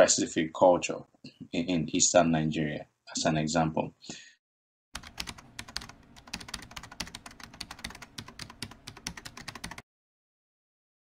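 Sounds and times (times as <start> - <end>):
keyboard typing clicks: 5.0 - 9.8.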